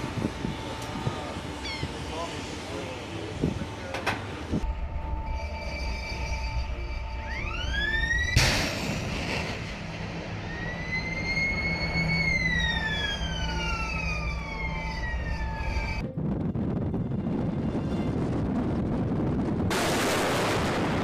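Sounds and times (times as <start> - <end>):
low rumble: 4.4 - 21.0
rising whine: 4.5 - 21.0
long whistling tone: 4.7 - 8.4, 10.3 - 16.0
rocket motor blast: 8.4 - 10.4, 19.6 - 21.0.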